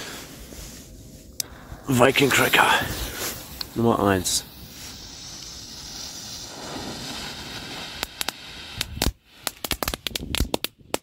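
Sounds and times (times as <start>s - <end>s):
fuse hissing: 1.4s - 9.4s
firecrackers cracking: 2.2s - 11.0s.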